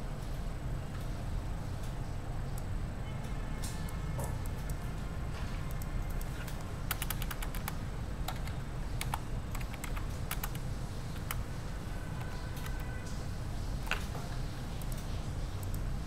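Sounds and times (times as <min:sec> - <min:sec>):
light clicks and taps at a desk: 0:13.8 - 0:15.8.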